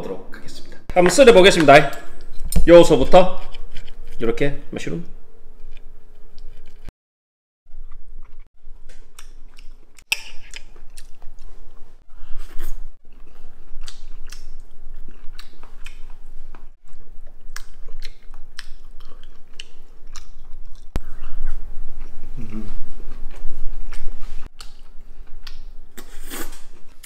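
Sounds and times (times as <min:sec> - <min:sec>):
person chewing with wet smacks: 0:07.9 - 0:11.6, 0:13.1 - 0:25.7.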